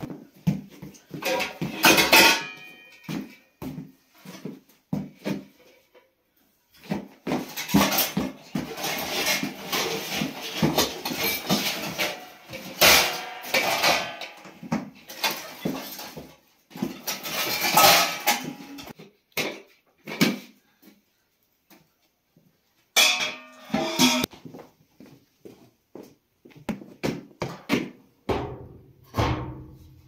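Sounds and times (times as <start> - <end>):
pots and utensils clattering: 1.0 - 3.3, 7.3 - 19.0, 23.0 - 24.3.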